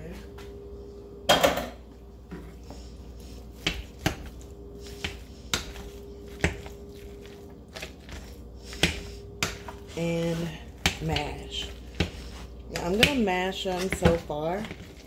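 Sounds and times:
faint hum: 0.0s - 15.0s.

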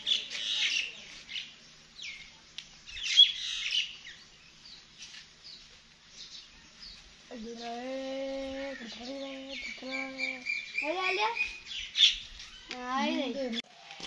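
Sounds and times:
birds chirping and squawking: 0.0s - 13.6s.

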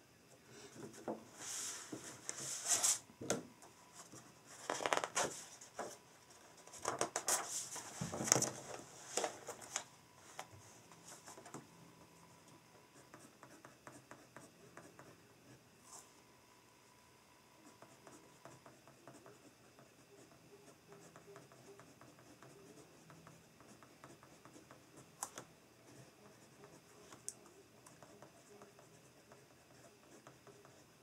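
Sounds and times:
paper pages rustling: 4.6s - 6.0s, 6.6s - 10.5s
pen scratching on paper: 12.9s - 15.6s, 17.6s - 25.1s, 25.8s - 31.0s.

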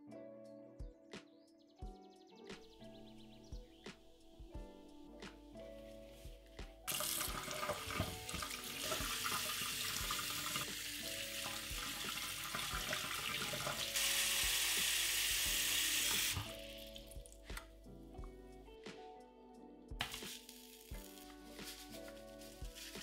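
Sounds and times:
tap running into metal sink: 6.9s - 10.7s, 11.4s - 13.9s
hands rinsing mushrooms: 6.9s - 17.6s, 20.0s - 23.0s.

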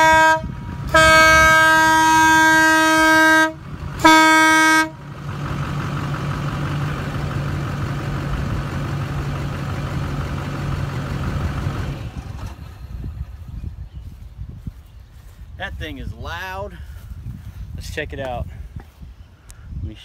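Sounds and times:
air horn blasts: 0.0s - 5.1s.

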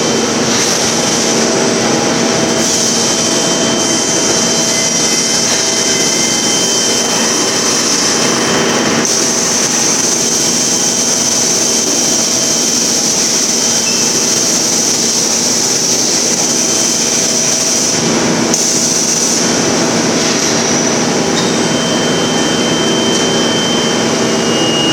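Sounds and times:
machine high whine: 0.0s - 24.9s
production-line machinery running: 0.0s - 24.9s.

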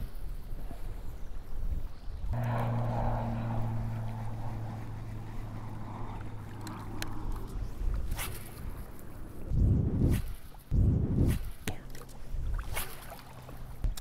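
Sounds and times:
fishing reel gear whir: 2.4s - 9.0s.

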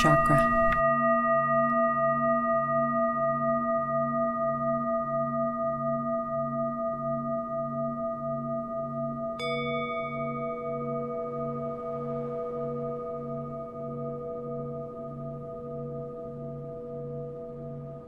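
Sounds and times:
singing bowl low pulsing hum: 0.0s - 18.0s
singing bowl struck with ting: 0.0s - 18.0s.

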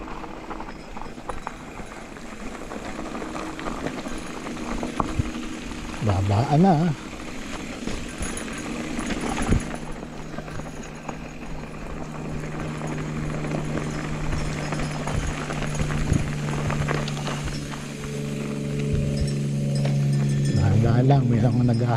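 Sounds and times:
bike rattling over stones: 0.0s - 21.9s
steady low hum: 0.0s - 21.9s
tyres crunching on gravel: 0.0s - 21.9s.

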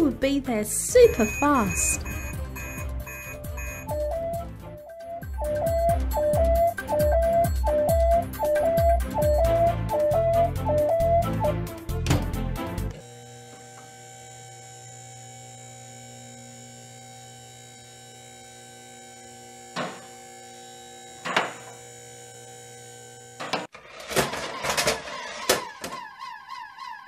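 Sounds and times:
electrical hum: 0.9s - 4.2s, 13.0s - 23.7s
warbling electronic siren tone: 1.0s - 7.5s, 25.3s - 27.0s.

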